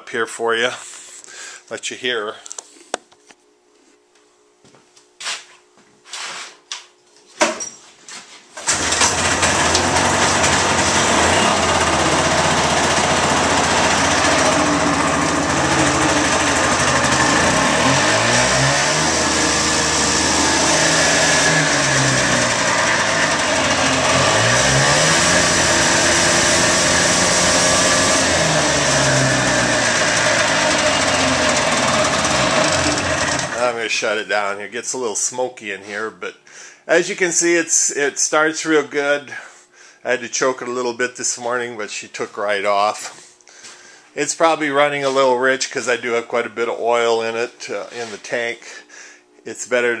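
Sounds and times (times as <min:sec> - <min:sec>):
snowmobile engine starting and running: 0:08.6 - 0:34.3.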